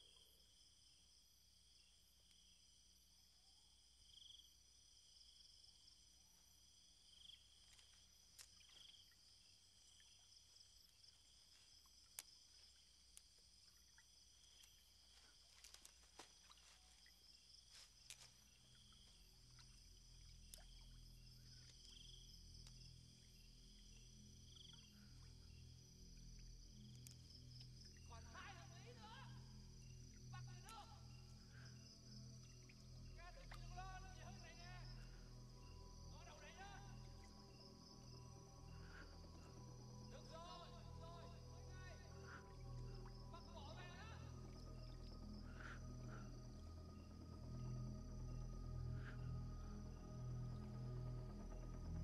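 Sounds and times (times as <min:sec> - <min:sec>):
night insects trilling: 0:00.0 - 0:52.0
faint clicks: 0:09.8 - 0:23.3.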